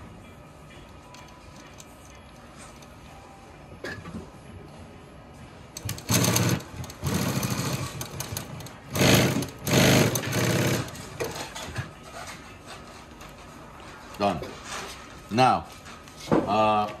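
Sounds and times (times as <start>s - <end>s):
sewing machine stitching: 5.8s - 11.0s.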